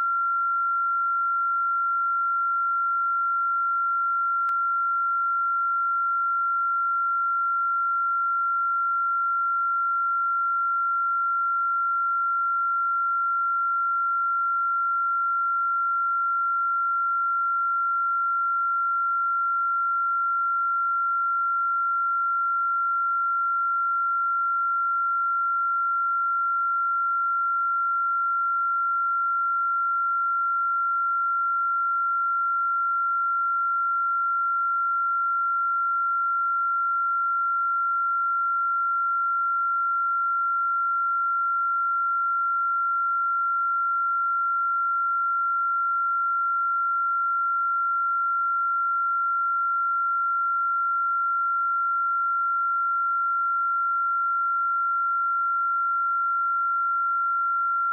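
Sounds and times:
high-pitched sine-wave test tone: 0:00.0 - 0:57.9.

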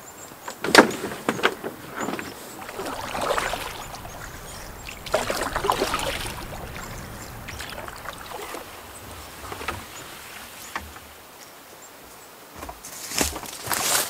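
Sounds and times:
paddle strokes splashing water: 0:00.7 - 0:11.3.

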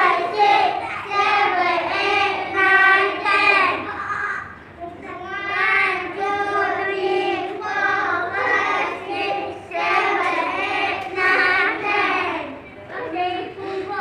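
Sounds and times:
young children singing: 0:00.0 - 0:14.0.

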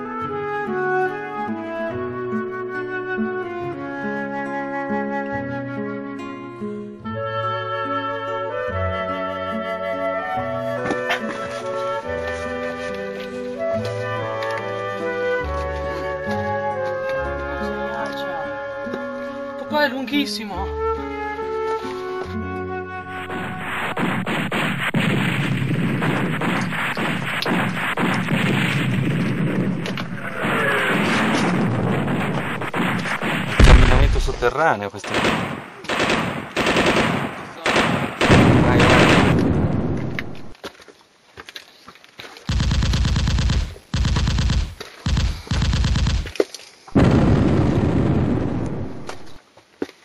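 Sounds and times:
sharp cracks and knocks: 0:23.3 - 0:30.1, 0:32.2 - 0:47.0, 0:48.6 - 0:50.0
machine-gun fire: 0:23.3 - 0:40.5, 0:42.5 - 0:46.4
loud blast with rumble: 0:23.9 - 0:35.6, 0:37.8 - 0:40.5, 0:47.0 - 0:49.3
loud rumbling noise: 0:33.6 - 0:34.6.

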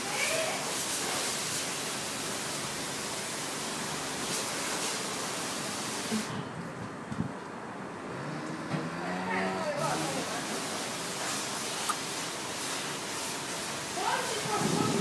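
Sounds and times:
high-pressure water spraying: 0:00.0 - 0:06.4, 0:09.8 - 0:15.0.

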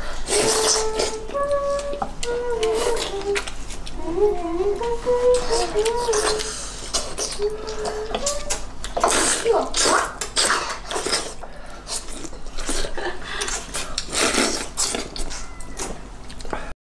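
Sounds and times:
people slurping noodles: 0:09.0 - 0:15.4.

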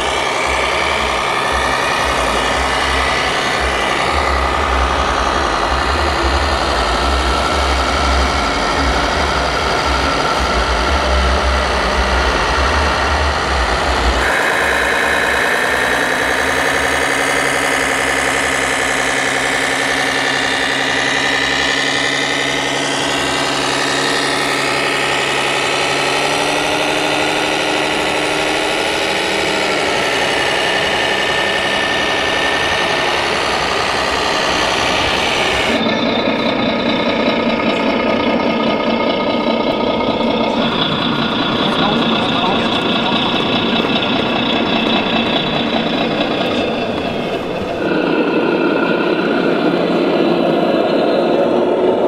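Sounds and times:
diesel truck engine idling sound: 0:00.0 - 0:52.0.

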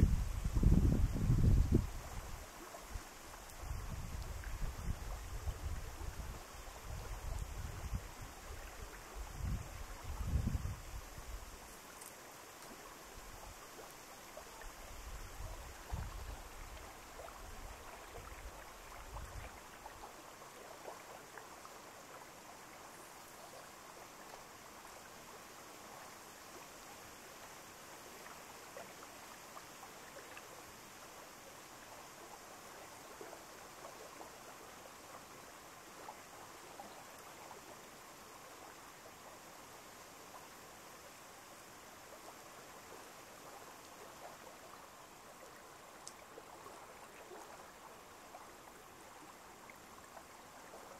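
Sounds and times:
wind buffeting microphone: 0:00.0 - 0:02.4, 0:09.3 - 0:11.4
running water: 0:00.0 - 0:50.9.

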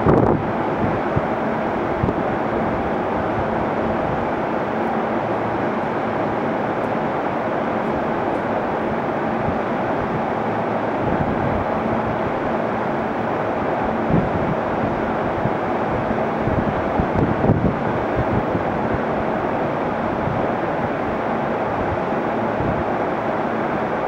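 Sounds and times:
electric train rumbling: 0:00.0 - 0:24.0.

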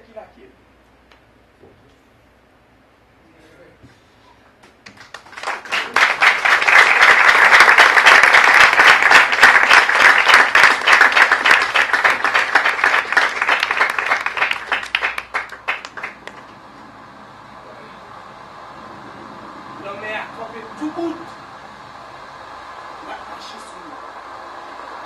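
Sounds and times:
audience applauding: 0:04.6 - 0:16.7.

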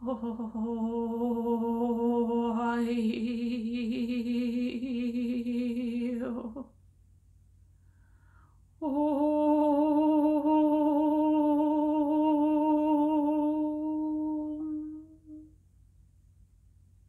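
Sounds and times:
woman humming: 0:00.0 - 0:06.7, 0:08.8 - 0:15.5.

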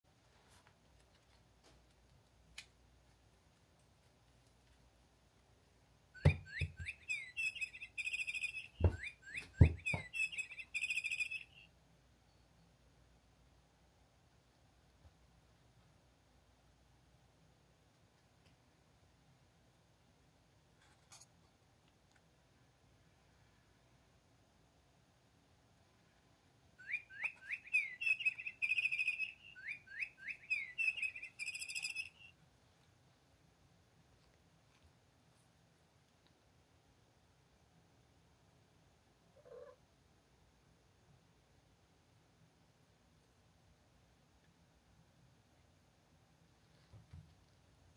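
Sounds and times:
electronic birdsong chirps and trills: 0:06.2 - 0:11.7, 0:26.8 - 0:32.3
knocks: 0:08.8 - 0:10.2.

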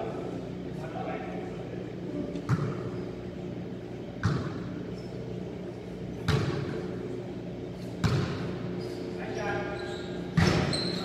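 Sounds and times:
basketball thudding on court: 0:04.2 - 0:04.6, 0:06.3 - 0:06.7, 0:08.0 - 0:08.4.

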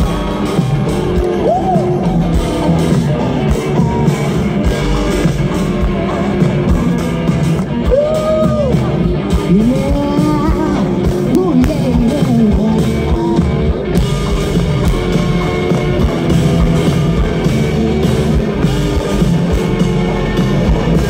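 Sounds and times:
drum kit: 0:00.0 - 0:21.0
electric guitar: 0:00.0 - 0:21.0
person singing: 0:07.8 - 0:13.7.

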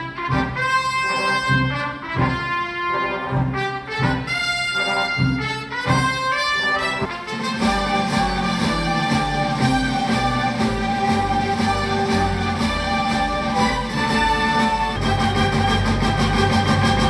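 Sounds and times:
brass horns playing melody: 0:00.0 - 0:17.0
steady drum beat: 0:05.3 - 0:17.0
heavy bass: 0:07.0 - 0:17.0.

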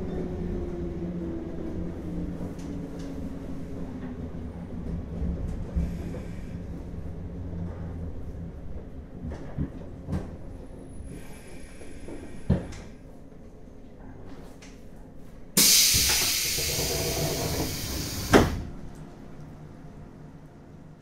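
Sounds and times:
air hiss of train doors: 0:05.7 - 0:06.8, 0:11.1 - 0:13.0, 0:15.6 - 0:18.7.

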